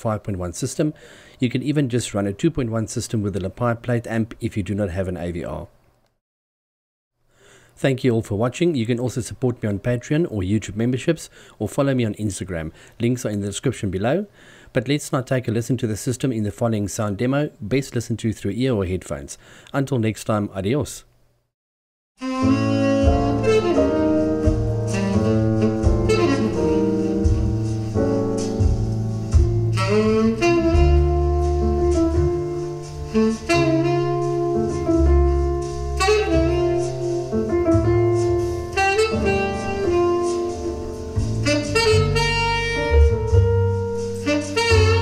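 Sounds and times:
bass line: 22.2s - 45.0s
jazz with saxophone lead: 22.2s - 45.0s.

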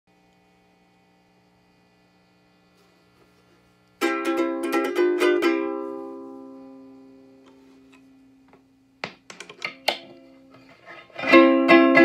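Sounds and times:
faint hum: 0.1s - 12.0s
ukulele strumming: 4.0s - 7.6s, 9.4s - 12.0s.

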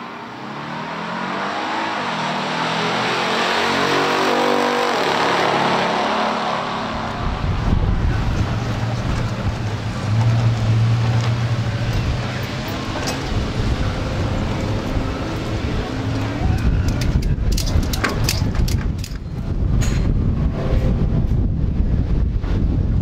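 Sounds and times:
cars accelerating hard: 0.0s - 17.8s
deep low engine rumble: 6.7s - 23.0s.

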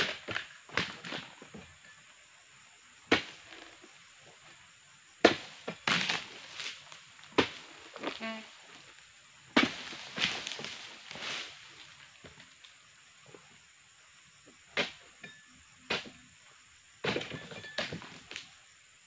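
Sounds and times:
pruning chisel chopping palm fronds: 5.2s - 6.3s, 9.6s - 11.4s
fronds crackling: 9.6s - 12.8s.

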